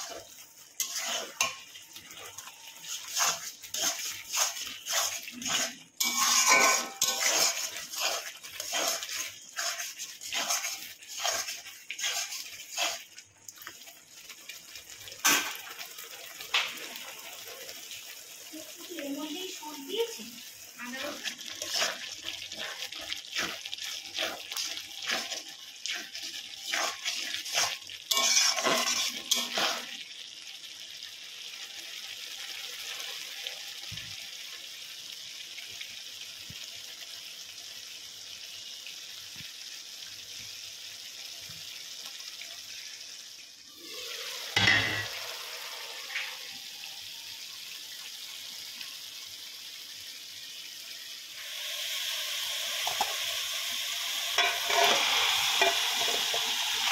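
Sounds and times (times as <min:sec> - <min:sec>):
spatula scraping a pan: 0:00.0 - 0:13.8, 0:20.8 - 0:30.0, 0:44.2 - 0:45.2, 0:52.8 - 0:53.2, 0:54.3 - 0:56.9
meat sizzling in a pan: 0:00.0 - 0:56.9.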